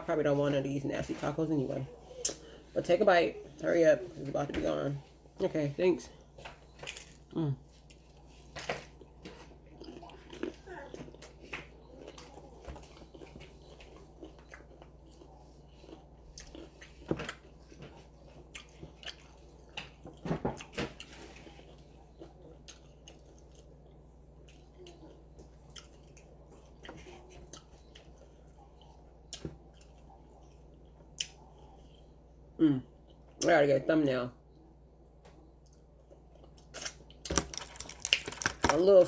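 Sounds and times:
chewing crisp food crunches: 0:06.8 - 0:32.0, 0:36.4 - 0:39.0.

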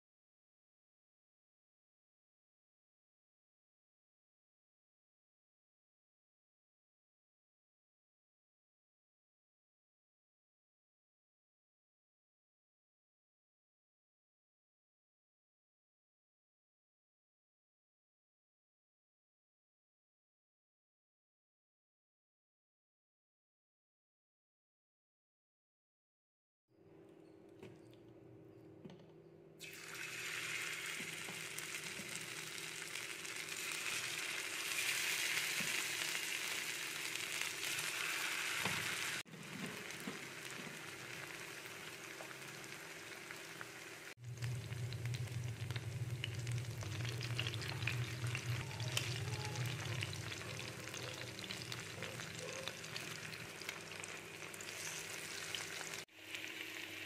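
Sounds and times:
chicken sizzling in a pan: 0:29.6 - 0:57.0
low hum: 0:44.2 - 0:52.2.

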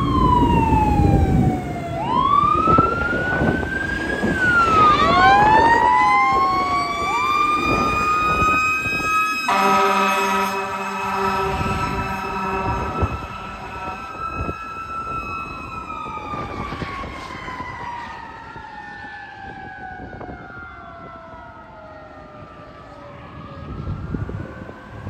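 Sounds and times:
passing traffic: 0:00.0 - 0:25.0
siren tone dropping in pitch: 0:00.0 - 0:25.0
wailing siren: 0:00.0 - 0:25.0.

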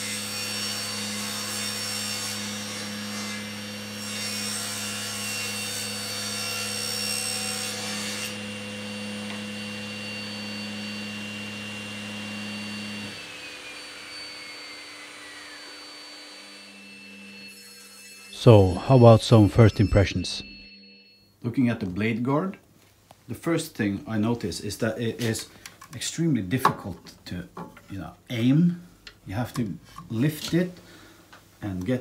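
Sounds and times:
table saw humming: 0:00.0 - 0:21.2
saw blade whine winding down: 0:08.8 - 0:21.3.

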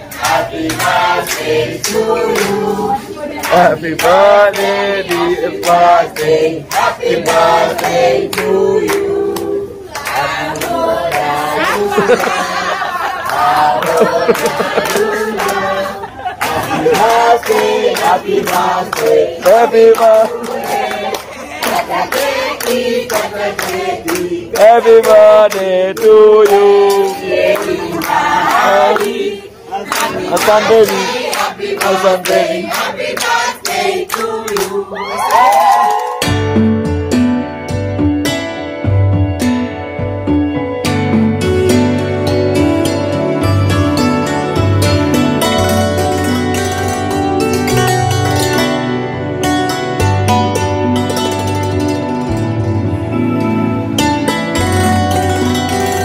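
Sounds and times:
group singing: 0:00.0 - 0:35.9
hand clapping: 0:00.2 - 0:02.6, 0:03.4 - 0:11.3, 0:13.2 - 0:15.7, 0:16.4 - 0:29.2, 0:29.9 - 0:36.3.

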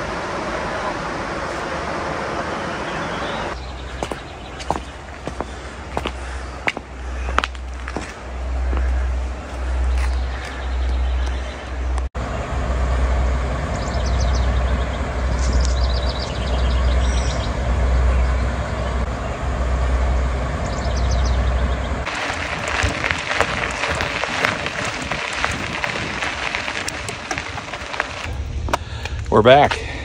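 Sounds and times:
bicycle tyre crunching on gravel: 0:03.5 - 0:11.8, 0:22.0 - 0:29.9
wind buffeting microphone: 0:20.9 - 0:29.3.

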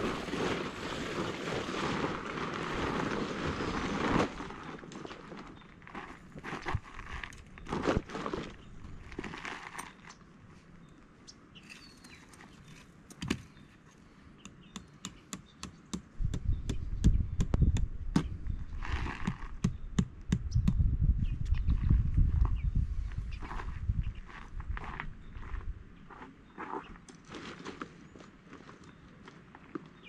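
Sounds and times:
tent stake tapped into gravel: 0:19.0 - 0:20.8.

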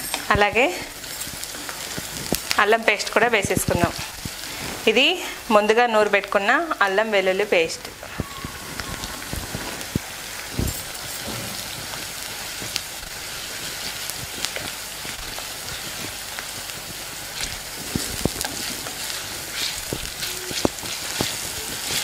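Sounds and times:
food sizzling in hot oil: 0:00.0 - 0:22.0
wooden spatula scraping pot: 0:17.4 - 0:22.0.

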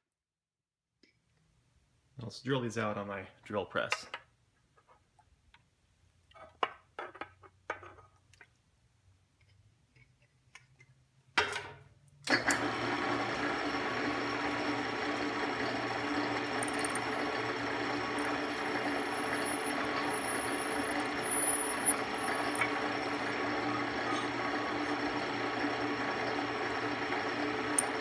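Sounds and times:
drill press motor running: 0:12.3 - 0:28.0.

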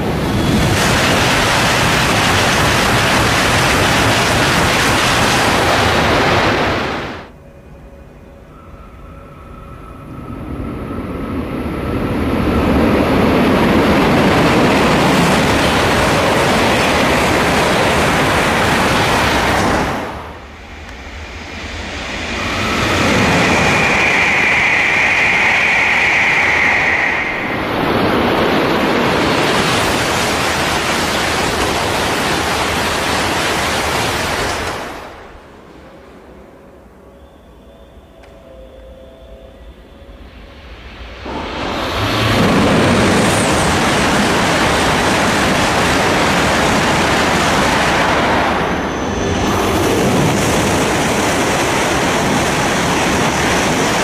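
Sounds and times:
trains passing at full speed: 0:00.0 - 0:54.0
high steady tone: 0:07.3 - 0:12.7, 0:20.4 - 0:29.1, 0:35.8 - 0:42.3.

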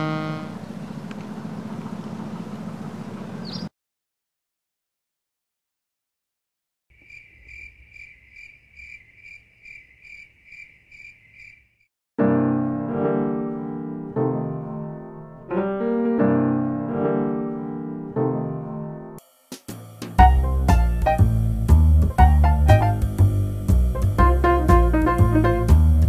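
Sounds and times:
piano music with chords: 0:00.0 - 0:00.6, 0:12.2 - 0:19.2, 0:20.2 - 0:26.0
cricket chirping: 0:06.9 - 0:11.9.

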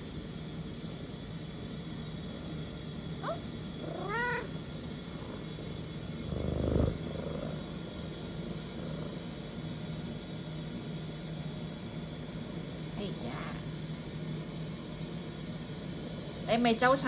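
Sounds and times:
steady low hum: 0:00.0 - 0:17.0
cat chirp and meow: 0:03.2 - 0:04.6.

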